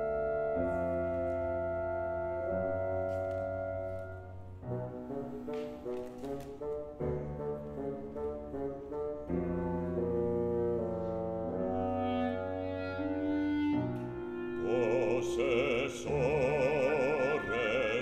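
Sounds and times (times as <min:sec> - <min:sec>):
woodwind ensemble playing chords: 0:00.0 - 0:18.0
operatic singing: 0:14.4 - 0:18.0.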